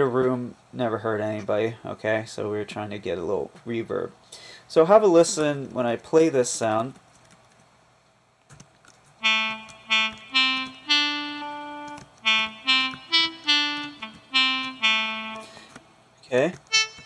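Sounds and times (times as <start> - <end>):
synth horn melody: 9.2 - 15.8, 16.6 - 17.0.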